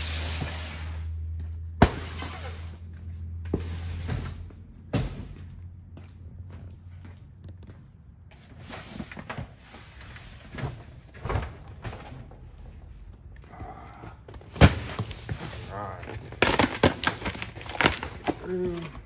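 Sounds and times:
rustling cardboard boxes: 8.3s - 19.0s.

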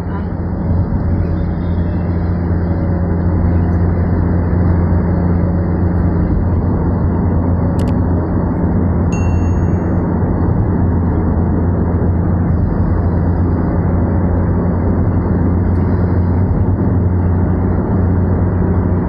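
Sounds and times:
car cabin road and engine noise: 0.0s - 19.0s
brief ding: 9.1s - 10.1s.

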